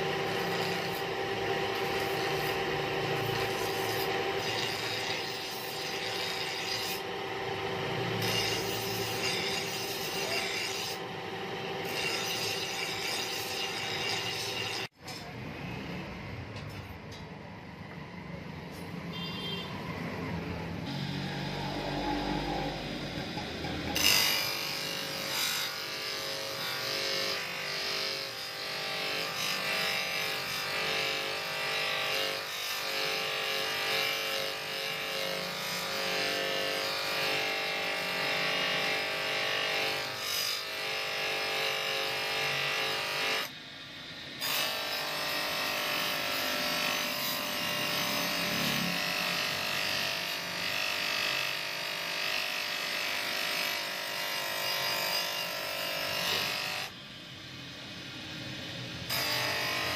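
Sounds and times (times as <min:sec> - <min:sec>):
grinder motor hum: 0:00.0 - 0:15.4, 0:19.1 - 0:40.0, 0:40.7 - 0:57.1.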